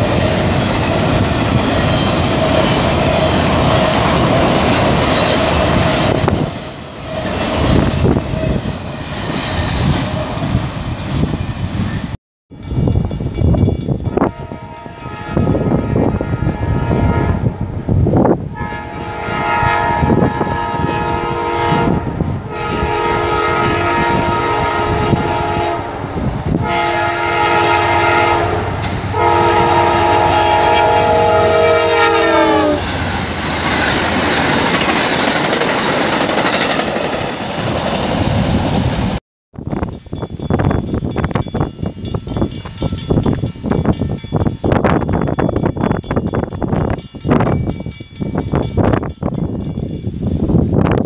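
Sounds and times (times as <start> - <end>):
train rumble and rail clatter: 0.0 - 51.0
locomotive air horn blasts: 14.1 - 17.7, 18.5 - 26.0, 26.6 - 33.0.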